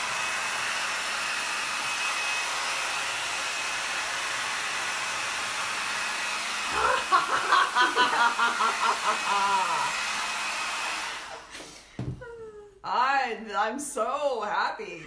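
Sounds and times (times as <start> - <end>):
hair dryer blowing with faint whistle: 0.0 - 12.1
person's voice: 6.7 - 10.0, 12.2 - 15.0.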